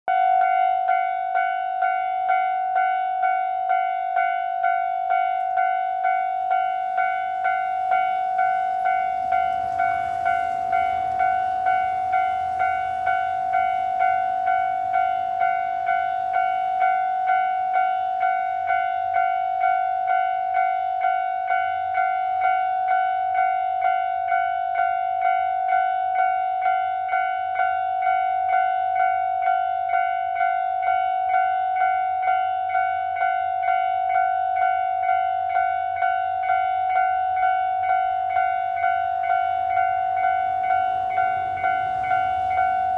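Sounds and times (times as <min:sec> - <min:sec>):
level-crossing warning bell ringing: 0:00.1 - 0:42.9.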